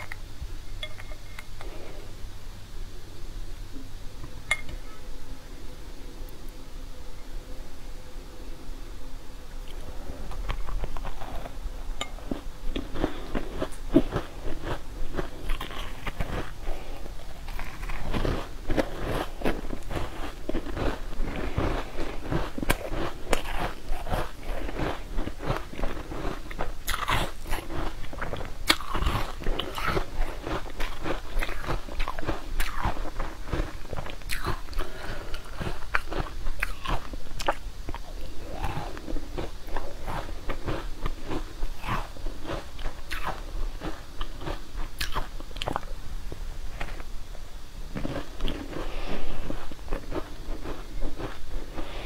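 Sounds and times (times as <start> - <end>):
crunchy chewing of frozen bar: 9.7 - 45.9, 47.9 - 52.0.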